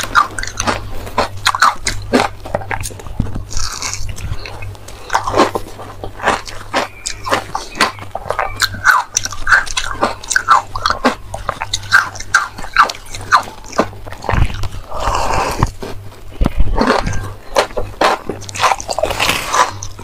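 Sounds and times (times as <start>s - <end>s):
crunching frozen ice: 0.0s - 20.0s.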